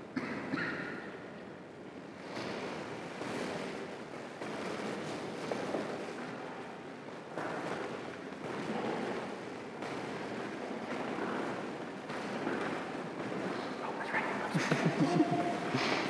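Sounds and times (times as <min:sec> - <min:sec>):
rushing room noise: 0:00.0 - 0:16.0
people rustling and shuffling: 0:01.0 - 0:16.0.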